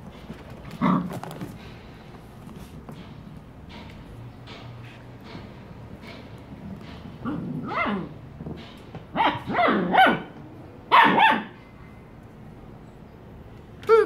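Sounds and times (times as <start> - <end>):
puppy barking and yipping: 7.3 - 8.1, 9.1 - 11.6.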